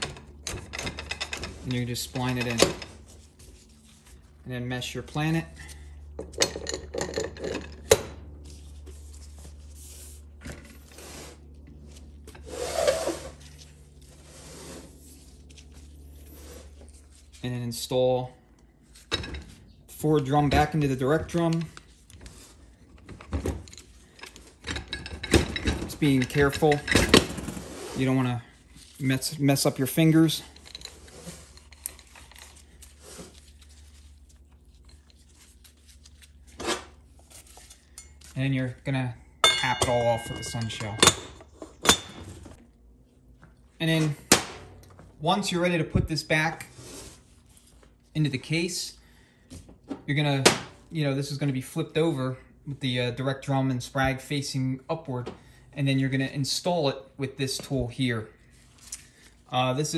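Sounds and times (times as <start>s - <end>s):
low steady hum: 0.0s - 59.9s
metal parts scraping on steel bench: 12.3s - 13.5s.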